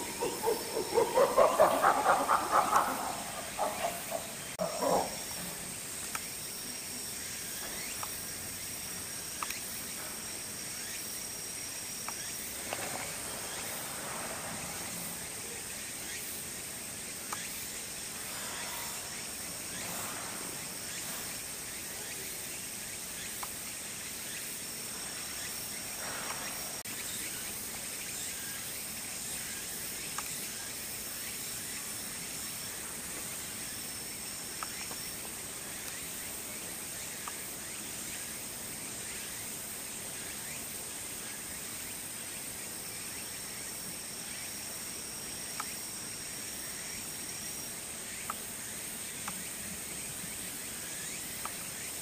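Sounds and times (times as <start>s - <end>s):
high-pitched insect trill: 0.0s - 52.0s
lower insect trill: 0.0s - 52.0s
faint clicks: 9.4s - 9.7s.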